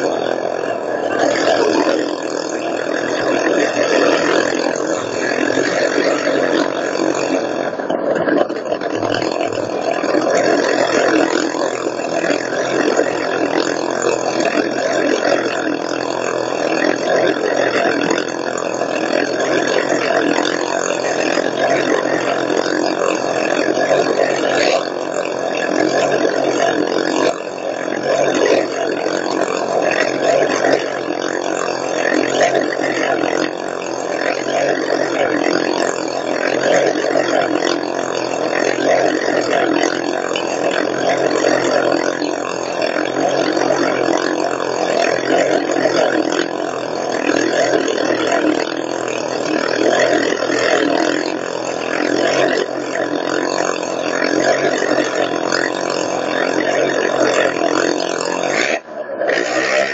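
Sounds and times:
motorcycle engines running hard: 0.0s - 16.1s, 23.4s - 24.8s.

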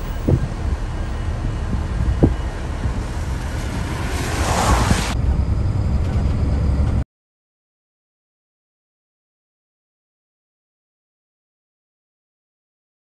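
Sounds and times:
diesel locomotive rumble: 0.0s - 7.0s
wind noise on microphone: 0.0s - 7.0s.

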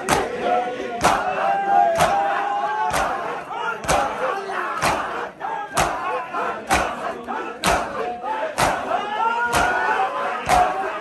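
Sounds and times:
hands slapping bare chests: 0.0s - 0.3s, 1.0s - 1.3s, 1.9s - 2.3s, 2.9s - 4.2s, 4.8s - 6.1s, 6.7s - 8.0s, 8.6s - 10.8s
men calling out together: 0.0s - 11.0s.

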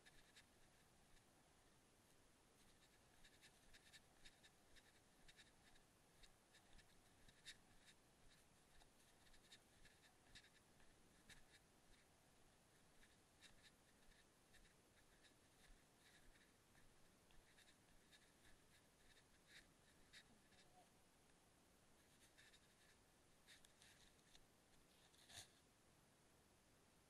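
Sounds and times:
faint clicks and scratches: 0.0s - 1.3s, 2.1s - 12.1s, 12.7s - 21.4s, 22.0s - 25.7s.

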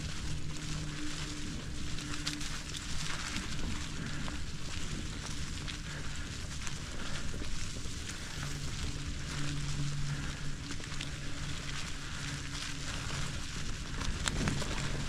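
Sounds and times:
bicycle tyres on dirt trail: 0.0s - 15.0s
low steady hum: 0.0s - 15.0s.

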